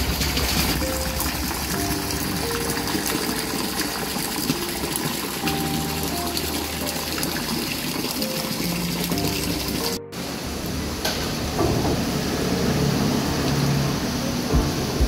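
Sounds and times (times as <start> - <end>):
rushing water: 0.0 - 15.0
slow melody of short notes: 14.5 - 15.0.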